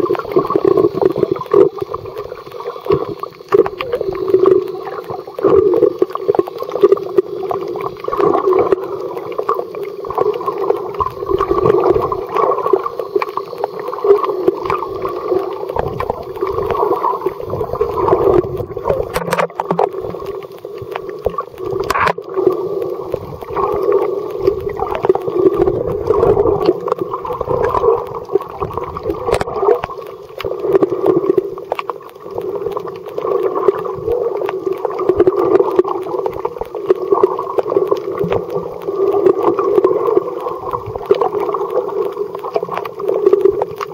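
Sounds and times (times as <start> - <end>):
faint clicks: 0.0 - 43.9
underwater rush and gurgle: 0.0 - 43.9.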